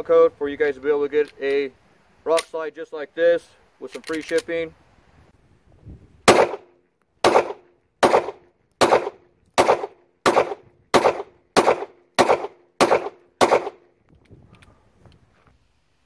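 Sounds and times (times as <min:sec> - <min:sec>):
pistol shots: 0:06.3 - 0:13.9.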